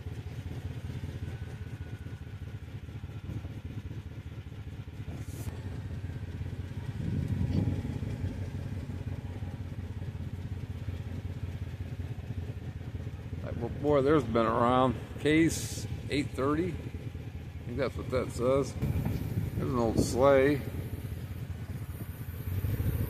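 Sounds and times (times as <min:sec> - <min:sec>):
small vehicle engine running: 0:00.0 - 0:23.0.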